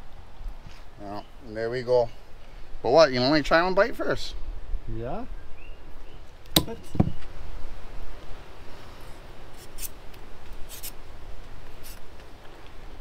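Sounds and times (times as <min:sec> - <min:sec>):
knife scraping plant stalk: 0:09.5 - 0:10.0, 0:10.6 - 0:11.0, 0:11.8 - 0:12.0.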